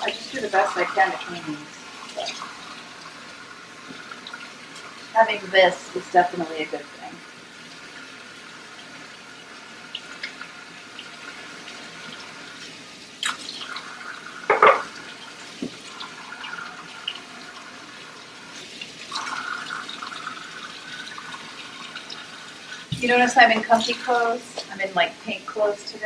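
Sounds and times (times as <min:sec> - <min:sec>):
tap water running into sink: 0:00.0 - 0:25.7
cups knocking against sink: 0:14.5 - 0:14.9.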